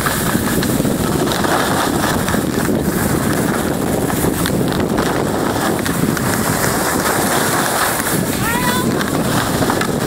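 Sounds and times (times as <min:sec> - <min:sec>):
skis scraping over snow: 0:00.0 - 0:10.0
wind buffeting microphone: 0:00.0 - 0:10.0.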